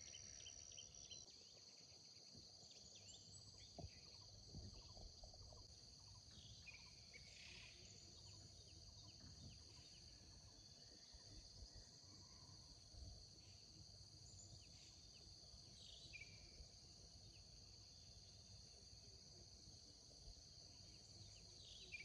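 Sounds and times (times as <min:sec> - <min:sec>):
faint bird chirps: 0:00.0 - 0:02.0, 0:02.6 - 0:12.7
insects droning: 0:00.0 - 0:22.0.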